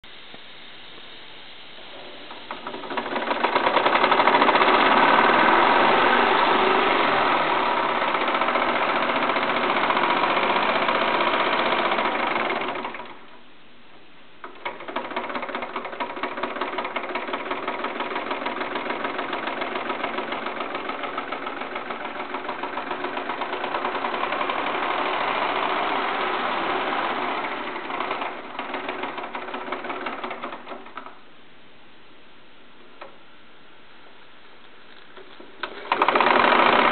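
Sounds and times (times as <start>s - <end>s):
model steam engine running: 1.9s - 13.3s, 14.4s - 31.1s, 35.6s - 36.9s.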